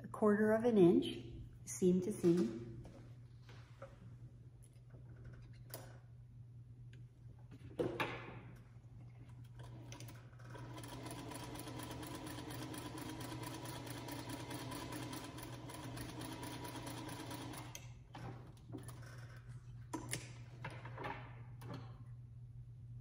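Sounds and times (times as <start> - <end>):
sewing machine stitching: 9.6 - 19.1.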